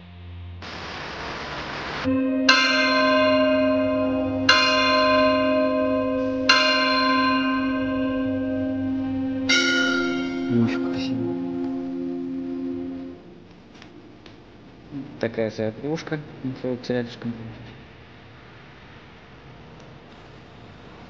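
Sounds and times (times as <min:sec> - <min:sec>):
church bell ringing: 0:02.0 - 0:13.3.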